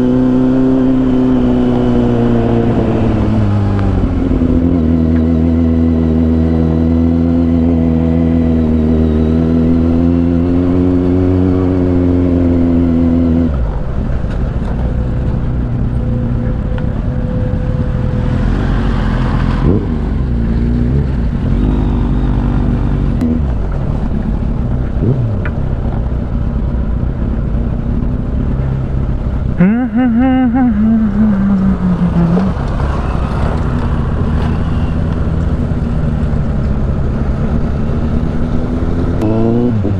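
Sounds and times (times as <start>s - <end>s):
short rising and falling tone: 29.6s - 35.1s.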